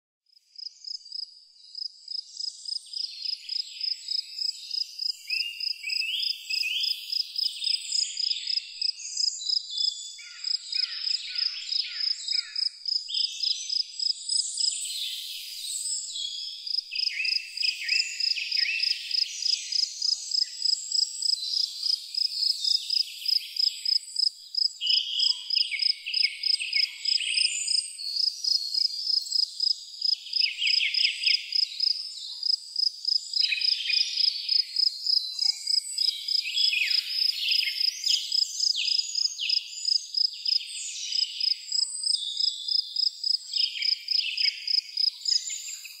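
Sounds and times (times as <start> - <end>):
crickets chirping: 16.7 - 45.9.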